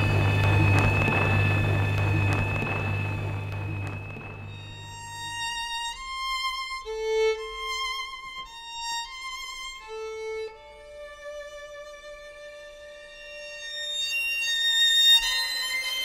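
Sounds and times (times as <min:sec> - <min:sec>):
violins bowing held notes: 0:00.0 - 0:05.4.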